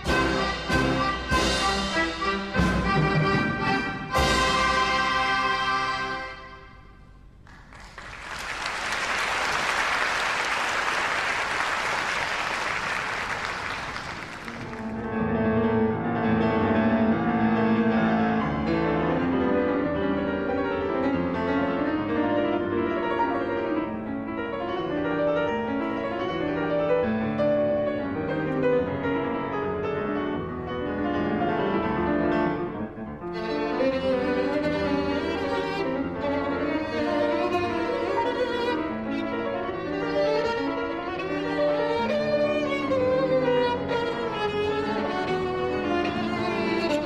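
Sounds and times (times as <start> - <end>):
grand piano classical piece: 0.0 - 47.0
audience applause: 7.4 - 15.0.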